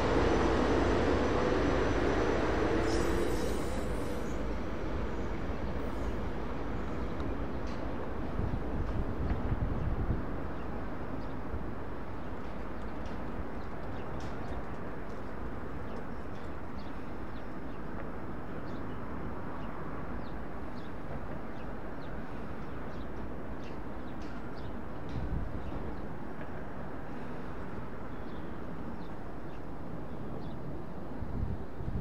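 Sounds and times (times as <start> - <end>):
electric train approaching: 0.0 - 7.5.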